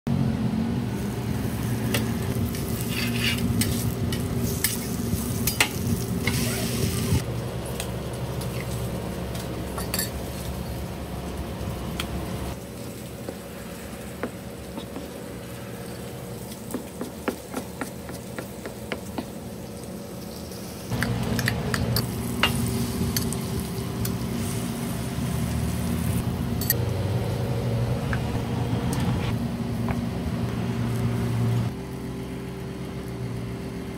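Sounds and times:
steady hum: 0:00.1 - 0:33.9
bacon sizzling on a griddle: 0:01.0 - 0:07.8, 0:19.5 - 0:21.5, 0:22.1 - 0:26.2
knife chopping on cutting board: 0:16.7 - 0:19.3.

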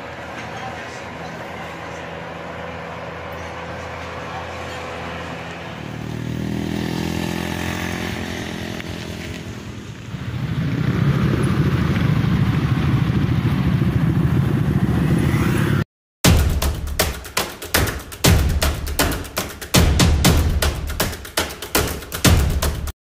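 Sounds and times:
motorcycle engines passing: 0:00.0 - 0:15.8
scooter riding past close by: 0:00.1 - 0:12.2.

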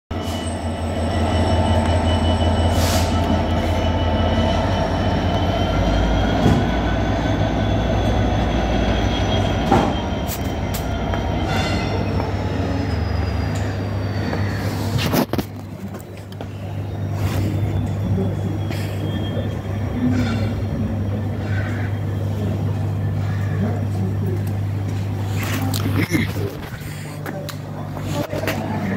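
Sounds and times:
high whining tones: 0:00.1 - 0:15.0
locomotive engine drone: 0:00.1 - 0:28.9.

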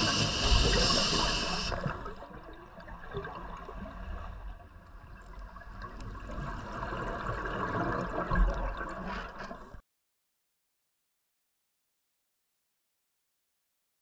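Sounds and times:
regulator bubbles gurgling underwater: 0:00.0 - 0:09.8.

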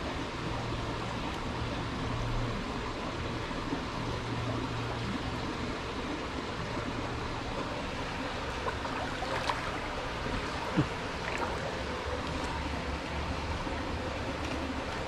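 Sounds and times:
flowing water rushing: 0:00.0 - 0:15.0
feet wading through shallow water: 0:07.2 - 0:15.0
short water splashes: 0:08.4 - 0:12.8.

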